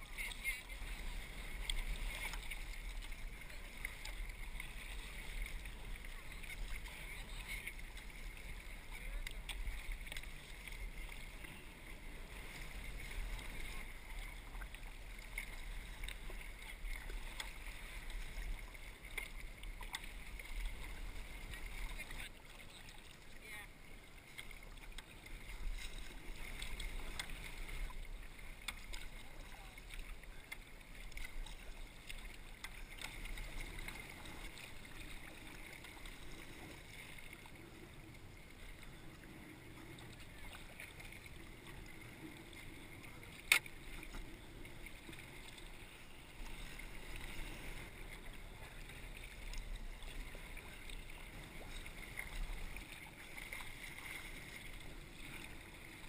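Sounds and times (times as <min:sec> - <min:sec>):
paddle strokes dipping: 0:00.0 - 0:56.0
water lapping against kayak hull: 0:00.0 - 0:56.0.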